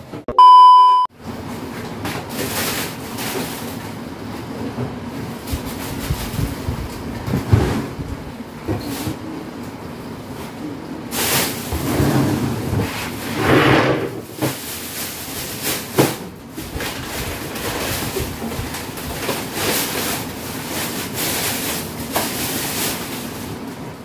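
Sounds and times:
plastic bags rustling: 1.9s - 4.0s, 5.2s - 7.5s, 11.1s - 11.9s, 14.2s - 24.0s.

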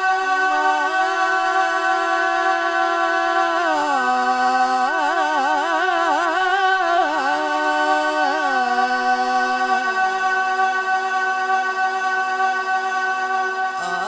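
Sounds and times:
man singing ornamented phrase: 7.1s - 12.0s, 13.8s - 14.0s
sustained drone: 7.5s - 14.0s.

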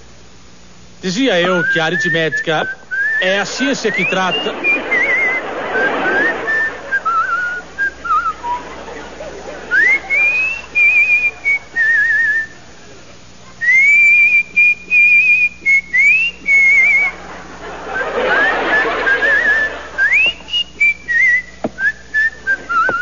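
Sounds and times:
person whistling a tune: 1.5s - 5.4s, 6.1s - 8.7s, 9.7s - 12.6s, 13.6s - 17.1s, 18.7s - 23.0s.

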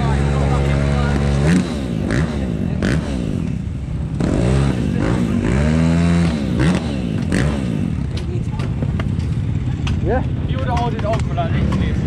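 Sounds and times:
motocross engine revving: 0.0s - 8.7s, 11.0s - 12.0s.

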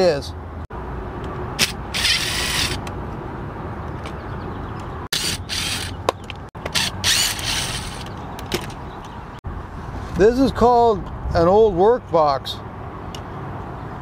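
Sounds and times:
cordless drill running: 1.6s - 2.8s, 5.1s - 6.0s, 6.7s - 8.0s.

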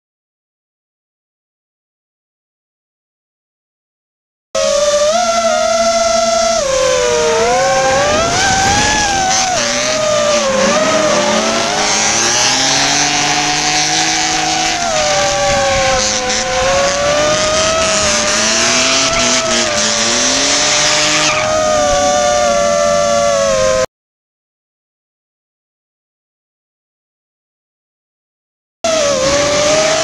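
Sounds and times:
tyres squealing: 4.6s - 22.8s
car engines revving: 4.6s - 23.9s, 28.9s - 30.0s
drone motors whining: 4.6s - 23.9s, 28.9s - 30.0s.

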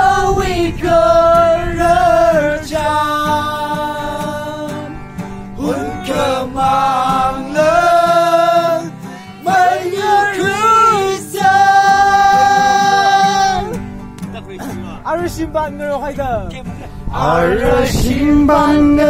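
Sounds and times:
group singing: 0.0s - 4.8s, 5.5s - 13.8s, 17.2s - 19.0s
acoustic guitar: 0.0s - 19.0s.

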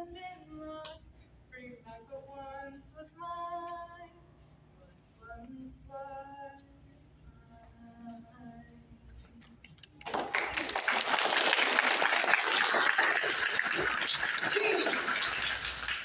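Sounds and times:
audience applauding: 10.0s - 16.0s.

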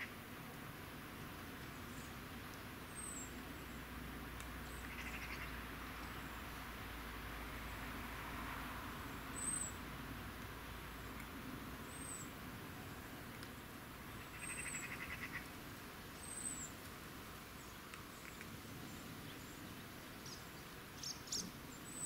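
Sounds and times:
bird chirping: 2.9s - 3.8s, 4.6s - 6.4s, 9.3s - 9.8s, 11.8s - 12.4s, 14.1s - 15.5s, 16.2s - 16.7s, 17.6s - 22.0s.

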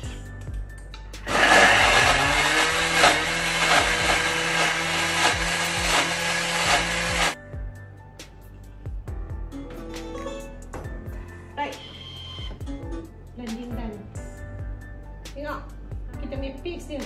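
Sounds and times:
blender motor whining: 1.3s - 7.4s.

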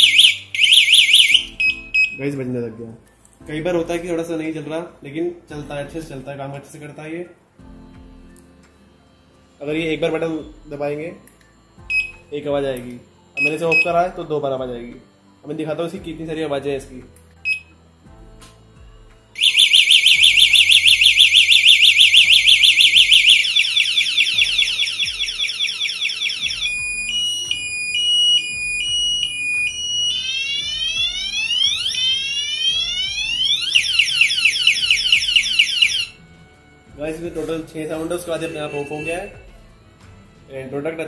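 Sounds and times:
electronic alarm siren: 0.0s - 2.2s, 11.9s - 12.2s, 19.4s - 36.2s, 38.3s - 39.5s
short beep: 38.4s - 39.4s.

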